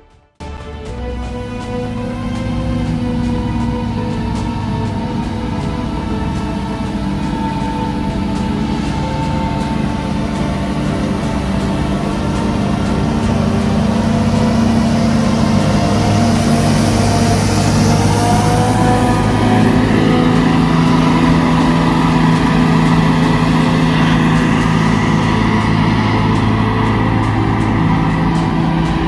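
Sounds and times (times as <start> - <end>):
harvester engine loud drone: 0.4 - 29.0
high rushing hiss: 1.2 - 29.0.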